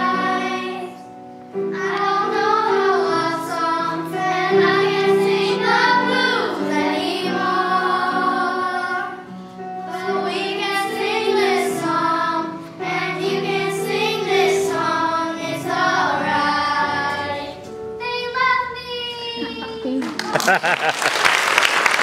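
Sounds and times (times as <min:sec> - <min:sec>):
children singing together: 0:00.0 - 0:18.7.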